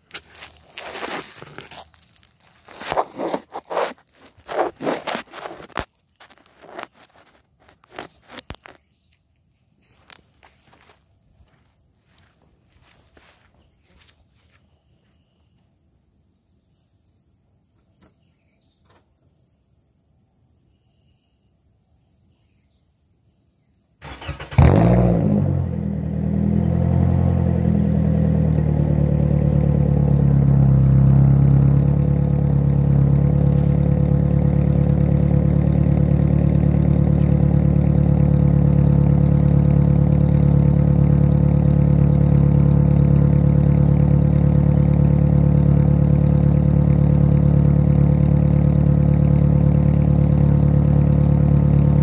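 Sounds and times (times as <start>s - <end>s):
car engine idling: 24.0s - 52.0s
car engine starting: 24.0s - 52.0s.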